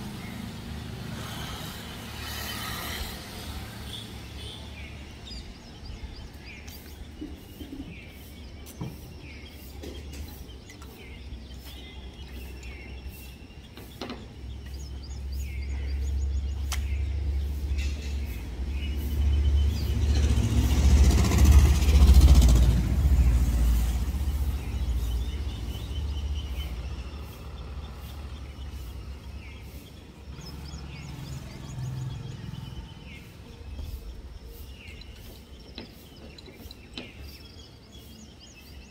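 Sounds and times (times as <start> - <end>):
vehicle passing by: 0.0 - 6.6, 14.4 - 36.2
birds chirping faintly: 0.0 - 38.9.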